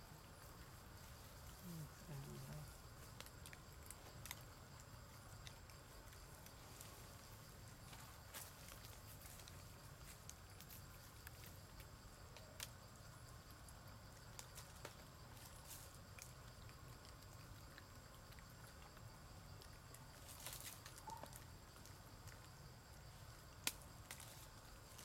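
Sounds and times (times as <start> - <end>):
soft ticks: 23.6 - 24.2.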